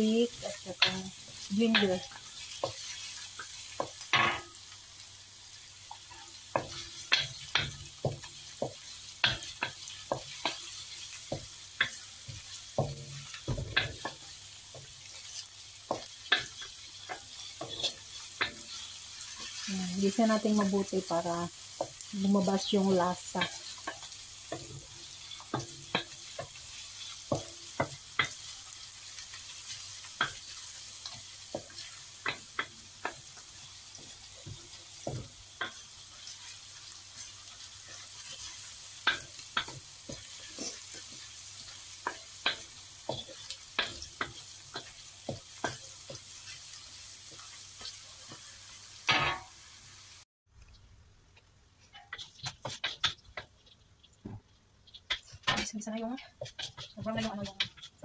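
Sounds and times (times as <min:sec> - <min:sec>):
garlic sizzling in hot oil: 0:00.0 - 0:50.3, 0:51.8 - 0:58.0
wooden spatula scraping wok: 0:06.0 - 0:48.8, 0:51.8 - 0:58.0.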